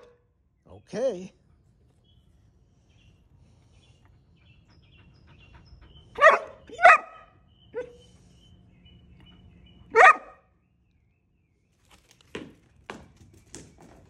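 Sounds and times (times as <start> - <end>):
puppy barking loudly: 6.2 - 8.0, 9.9 - 10.4.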